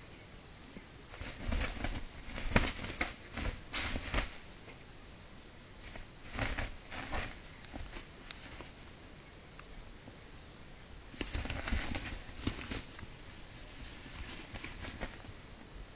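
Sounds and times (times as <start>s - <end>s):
cloth rustling: 1.1s - 4.6s, 5.8s - 9.0s, 11.1s - 15.5s.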